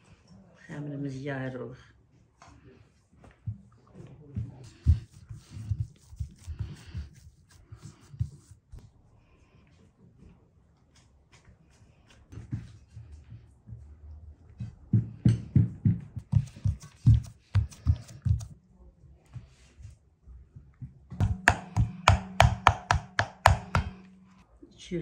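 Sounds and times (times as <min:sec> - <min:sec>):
hands patting dough: 0:04.5 - 0:08.8, 0:15.2 - 0:18.6, 0:20.9 - 0:24.3.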